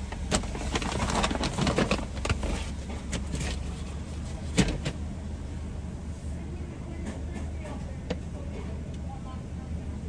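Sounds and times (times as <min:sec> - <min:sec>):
car engine idling: 0:00.0 - 0:10.0
paper bag rustling: 0:00.2 - 0:04.8.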